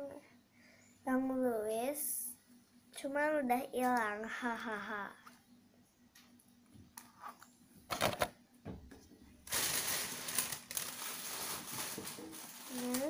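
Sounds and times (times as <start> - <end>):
rummaging through plastic packaging: 9.5 - 13.0.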